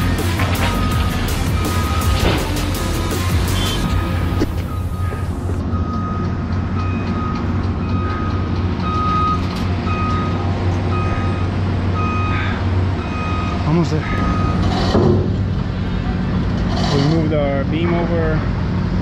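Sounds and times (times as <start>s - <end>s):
low engine rumble: 0.0s - 19.0s
back-up alarm beeping: 0.7s - 2.3s, 3.5s - 12.4s, 13.0s - 14.6s.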